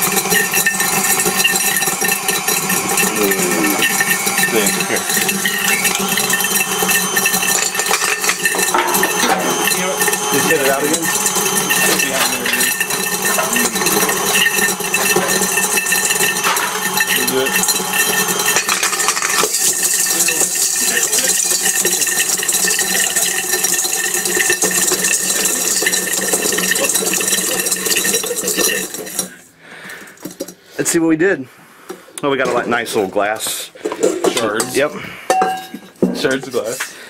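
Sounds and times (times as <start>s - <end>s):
stand mixer motor hum: 0.0s - 29.3s
glass shards rattling in metal bowl: 0.0s - 29.4s, 34.5s - 36.8s.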